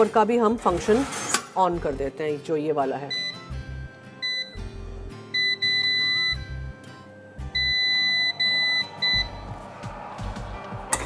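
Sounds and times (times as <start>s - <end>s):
background music: 0.0s - 11.0s
oven control panel beeping: 3.1s - 3.5s, 4.2s - 4.6s, 5.3s - 6.7s, 7.5s - 9.5s.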